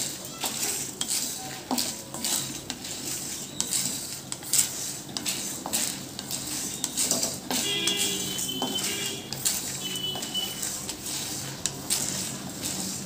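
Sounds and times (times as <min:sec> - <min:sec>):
spatula scraping in a pan: 0:00.0 - 0:13.0.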